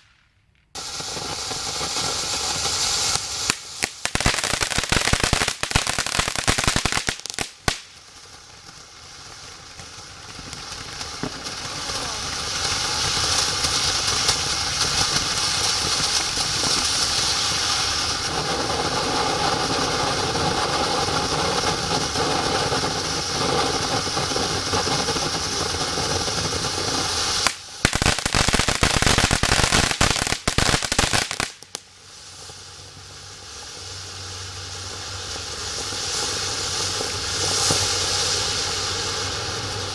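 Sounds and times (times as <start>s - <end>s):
fireworks crackling: 0.0s - 39.9s
firework fountain hissing: 0.8s - 39.9s.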